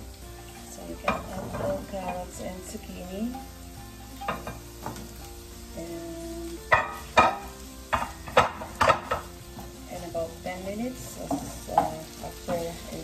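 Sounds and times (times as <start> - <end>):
light sizzle: 0.0 - 13.0
spatula knocking against pan: 6.7 - 9.3.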